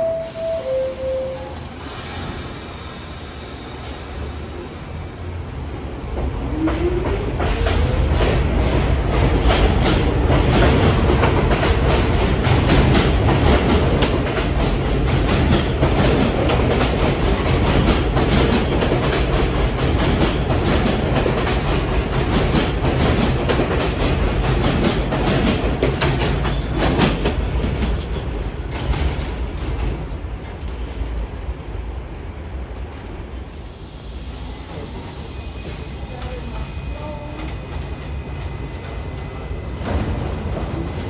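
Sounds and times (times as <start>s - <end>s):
train rumble: 0.0s - 41.0s
train wheels clacking on rails: 6.0s - 31.0s, 34.3s - 41.0s.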